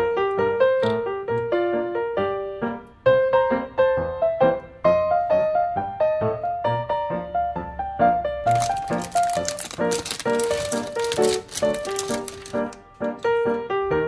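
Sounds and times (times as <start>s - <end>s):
light piano tune: 0.0s - 14.0s.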